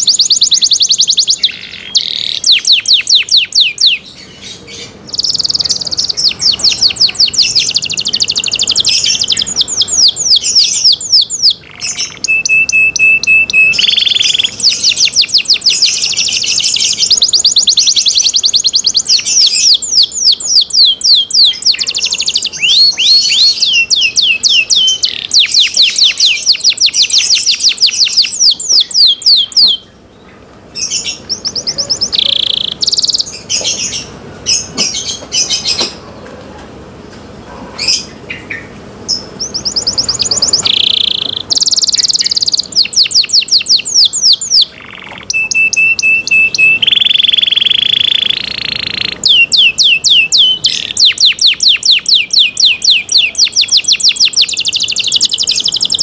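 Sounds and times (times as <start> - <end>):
canary singing trills: 0.0 - 36.2, 37.2 - 56.0.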